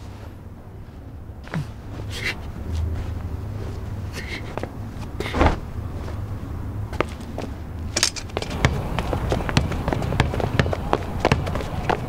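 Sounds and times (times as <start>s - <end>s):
footsteps on hard ground: 6.9s - 12.0s.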